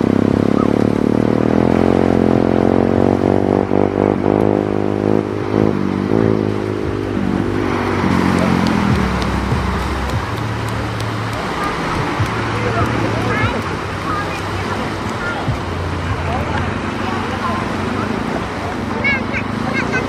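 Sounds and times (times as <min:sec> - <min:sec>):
motor engine running: 0:00.0 - 0:20.0.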